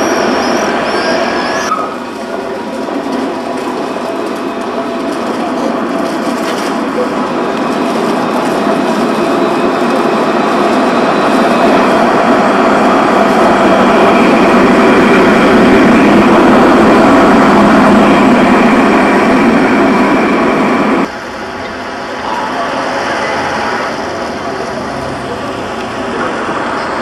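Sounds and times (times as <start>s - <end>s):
tram wheels rumbling on rails: 0.0s - 27.0s.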